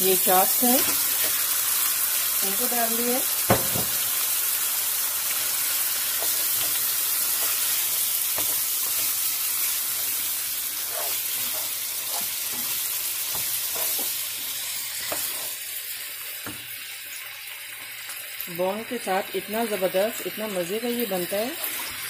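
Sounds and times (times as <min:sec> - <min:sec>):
meat sizzling in hot oil: 0:00.0 - 0:22.0
spoon scraping pot: 0:10.7 - 0:14.2.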